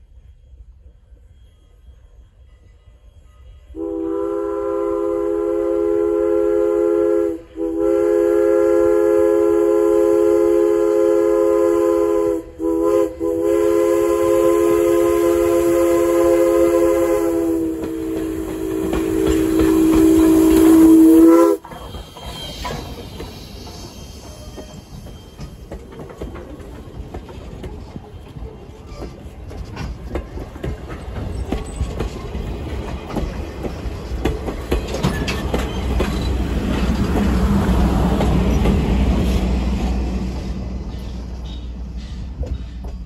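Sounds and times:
steam locomotive chime whistle: 1.0s - 26.3s
locomotive rumble: 4.1s - 43.0s.

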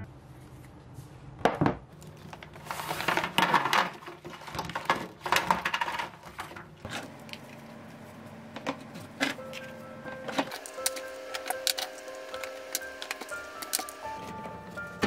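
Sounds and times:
baking sheet scraping and rustling: 2.1s - 7.2s.

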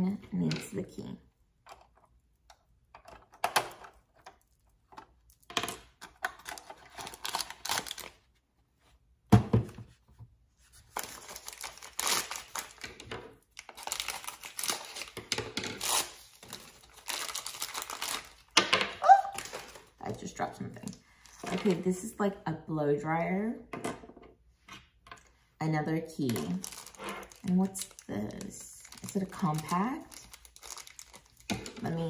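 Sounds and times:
tissue paper crinkling and tearing: 10.9s - 12.8s, 13.6s - 15.1s, 15.8s - 18.5s, 26.6s - 31.5s.

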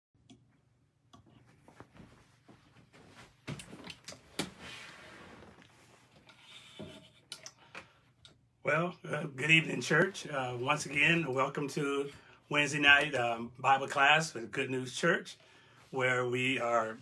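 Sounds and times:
leather chair rubbing and rustling: 1.6s - 6.2s.

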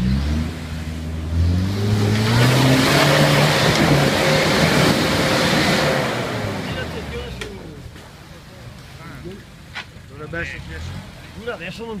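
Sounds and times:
engine revving hard: 0.0s - 7.2s
tyres churning in mud: 0.0s - 12.0s.

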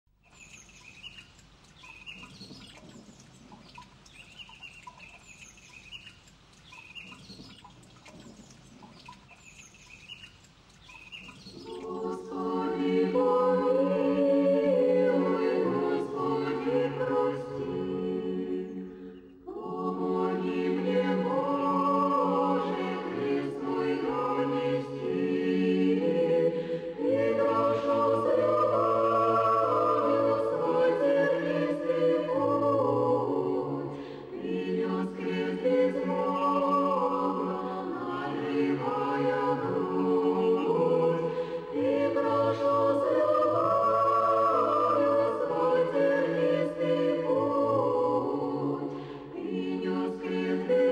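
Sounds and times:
unaccompanied choir singing: 10.9s - 50.9s.

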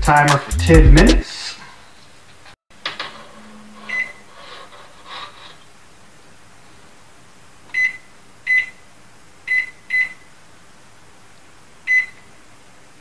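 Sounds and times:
microwave keypad beeps: 3.9s - 4.2s, 7.7s - 8.8s, 9.5s - 10.2s, 11.9s - 12.3s.

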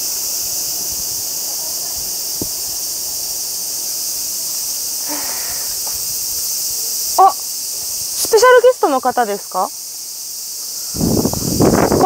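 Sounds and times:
cicadas shrilling: 0.0s - 12.0s
woman exclaiming: 7.2s - 7.4s.

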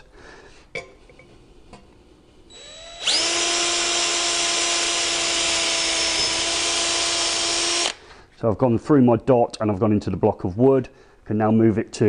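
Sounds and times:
cordless drill drilling through steel: 2.5s - 8.0s.

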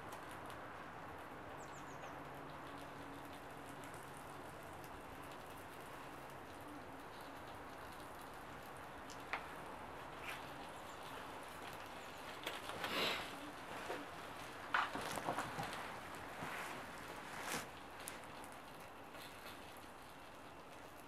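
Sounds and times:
fire crackling: 0.0s - 21.0s.

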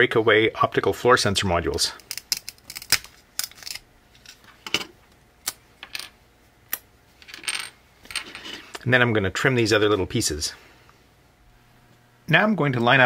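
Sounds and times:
circuit boards snapping apart: 2.0s - 3.8s.

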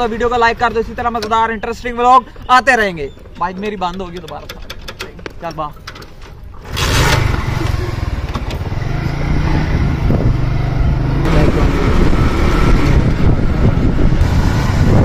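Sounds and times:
motorcycle engine running: 6.6s - 15.0s.

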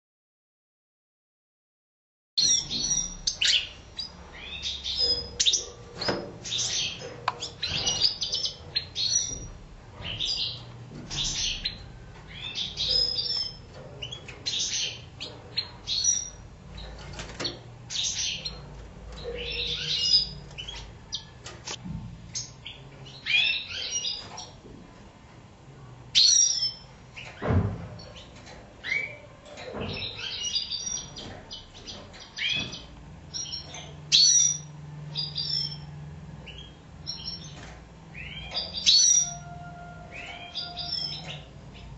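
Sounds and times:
finches twittering and chirping: 2.4s - 21.3s, 28.0s - 39.5s, 40.1s - 41.9s.

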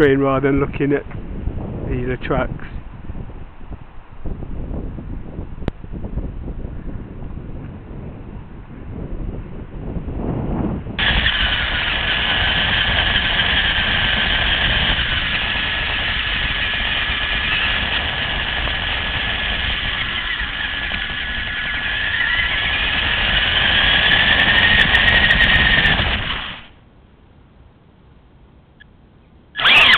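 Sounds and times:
rc car motor whine: 11.0s - 26.8s, 29.5s - 29.9s.

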